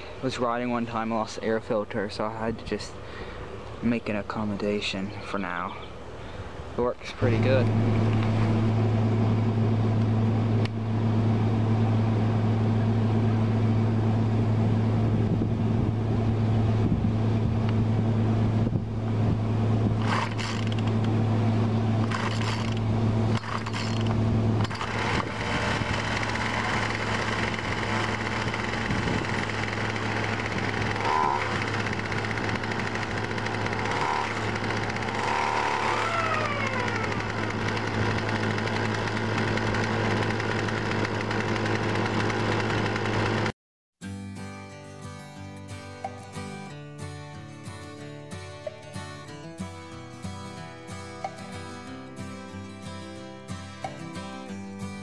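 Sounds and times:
chainsaw engine idling: 0:19.9 - 0:43.5.

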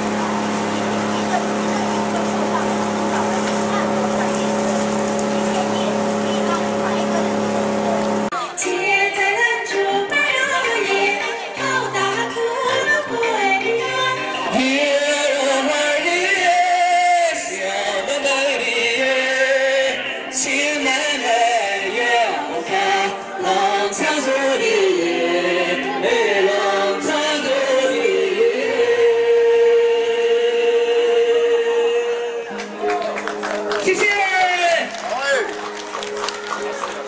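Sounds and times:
music with singing: 0:00.0 - 0:34.9.

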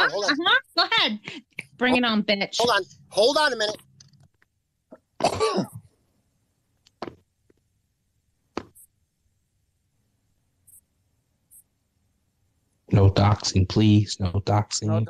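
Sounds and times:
person's throaty vocal sound: 0:04.9 - 0:05.8.

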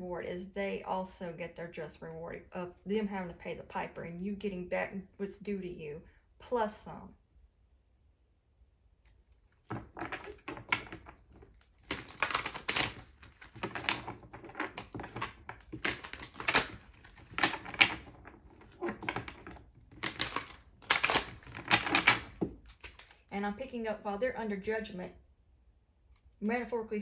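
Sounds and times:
cards being shuffled: 0:09.4 - 0:23.3.

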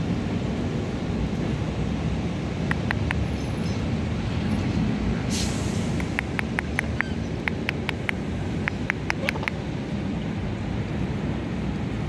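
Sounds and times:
city street traffic rumble: 0:00.0 - 0:12.0
sharp clicks: 0:02.6 - 0:03.3, 0:05.9 - 0:09.6
short hiss: 0:05.3 - 0:06.2.

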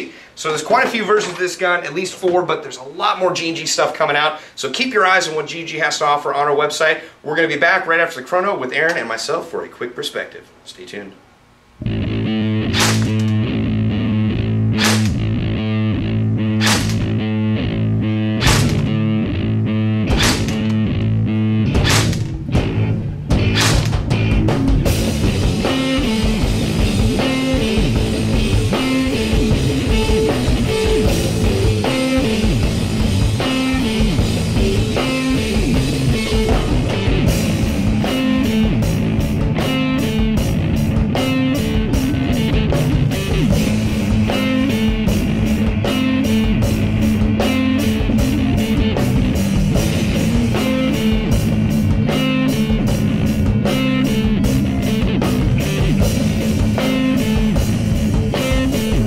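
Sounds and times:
rock music with guitar and drums: 0:11.8 - 0:59.0.

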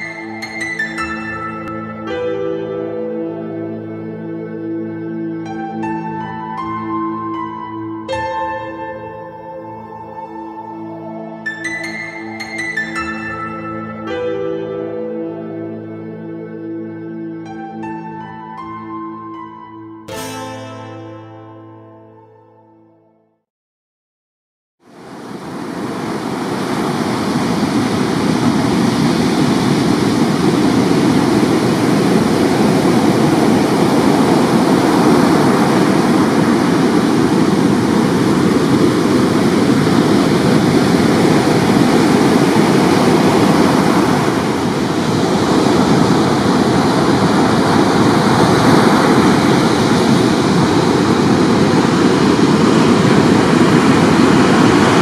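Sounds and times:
ocean surf breaking on beach: 0:00.0 - 0:03.0, 0:24.9 - 0:55.0.

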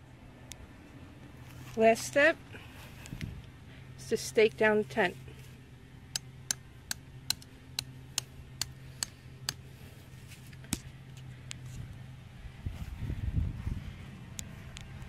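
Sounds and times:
steady low hum: 0:00.0 - 0:15.0
metal tent stake tapping: 0:06.1 - 0:09.6.

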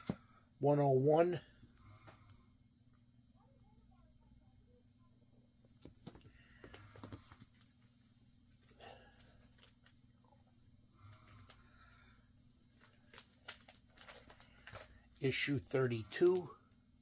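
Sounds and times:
low steady hum: 0:00.0 - 0:17.0
plastic-bagged comics rustling: 0:05.7 - 0:10.1, 0:12.6 - 0:16.5.

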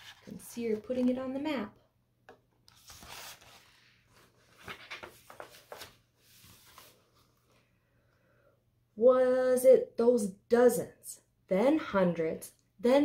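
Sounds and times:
book pages rustling: 0:00.0 - 0:01.2, 0:02.3 - 0:07.6.

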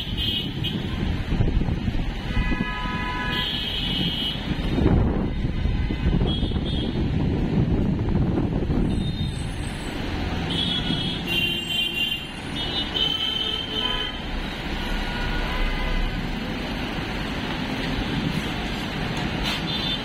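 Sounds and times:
city traffic rumble: 0:00.0 - 0:20.0.

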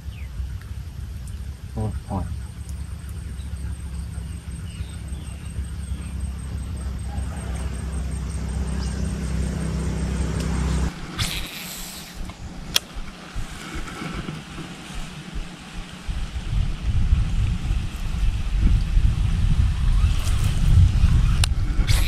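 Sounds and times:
low engine-like hum: 0:00.0 - 0:22.0
open-air background: 0:00.0 - 0:22.0.

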